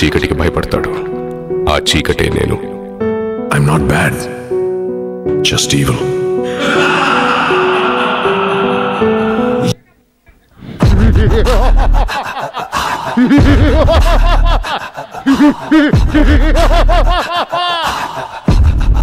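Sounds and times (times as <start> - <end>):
loud evil laugh: 6.5 - 9.7, 10.8 - 19.0.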